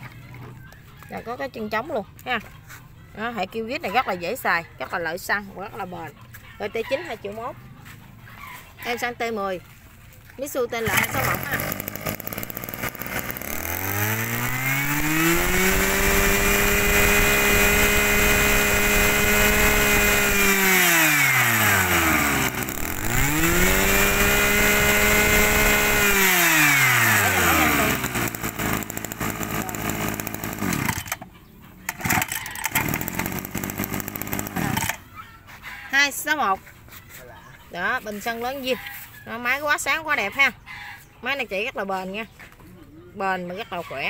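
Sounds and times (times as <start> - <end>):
brush cutter engine revving: 10.5 - 35.2.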